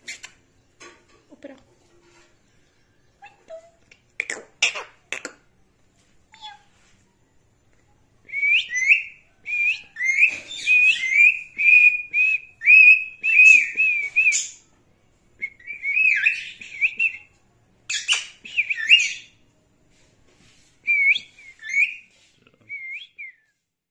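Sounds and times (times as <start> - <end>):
parakeet chirping and whistling: 8.6 - 14.6, 15.5 - 17.2, 17.9 - 19.4, 20.9 - 22.0.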